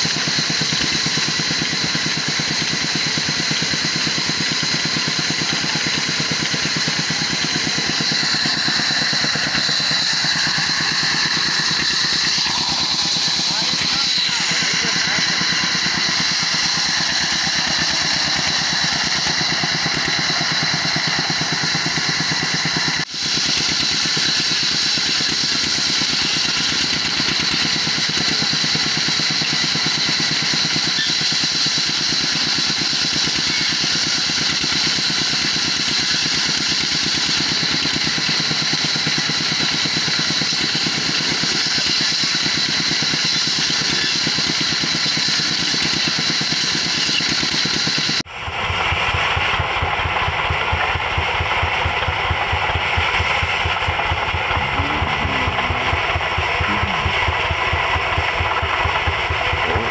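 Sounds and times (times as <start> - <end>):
band saw blade whining in wood: 0.0 - 48.3
diesel engine running: 0.0 - 59.9.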